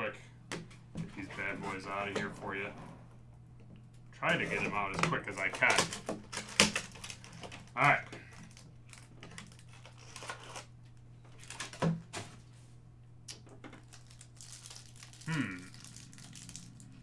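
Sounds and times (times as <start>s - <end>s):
plastic wrap crinkling: 4.3s - 10.7s, 11.3s - 12.2s, 13.7s - 17.0s.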